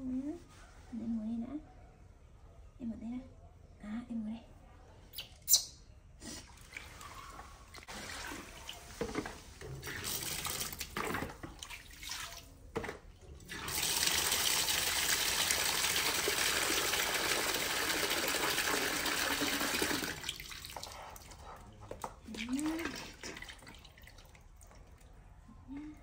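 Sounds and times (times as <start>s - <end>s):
water splashing from plastic basin: 6.4s - 25.1s.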